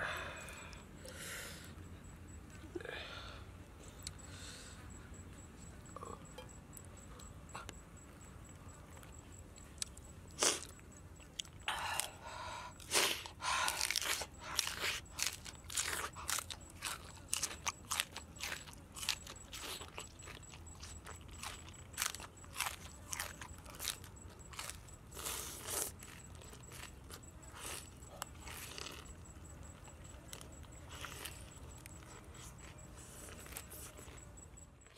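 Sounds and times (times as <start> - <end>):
person chewing crisp lettuce: 8.9 - 34.9.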